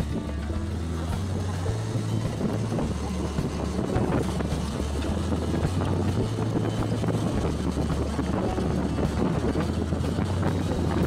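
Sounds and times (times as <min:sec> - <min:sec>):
motorcycle engine running: 0:00.0 - 0:11.0
wind noise on microphone: 0:00.0 - 0:11.0.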